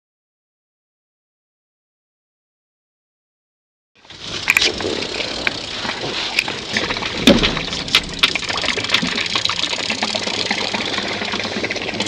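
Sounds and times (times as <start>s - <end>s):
water lapping against boat hull: 4.1s - 12.0s
dull knock: 7.2s - 8.2s.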